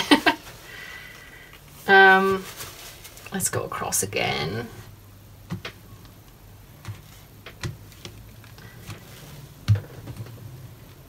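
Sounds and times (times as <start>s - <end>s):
cloth rubbing on wax painting: 1.7s - 3.8s.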